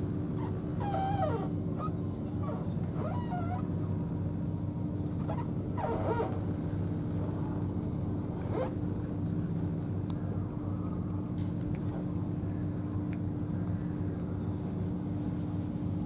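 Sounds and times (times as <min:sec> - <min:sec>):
animal calls bending in pitch: 0:00.8 - 0:03.6.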